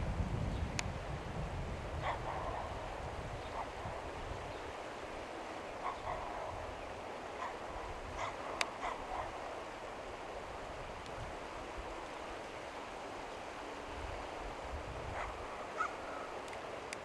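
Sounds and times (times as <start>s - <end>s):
short animal calls: 15.7s - 16.3s.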